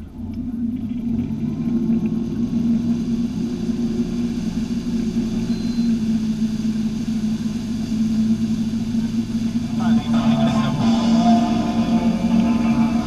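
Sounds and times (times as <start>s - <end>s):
boat engine droning: 0.0s - 13.0s
water churning: 0.0s - 13.0s.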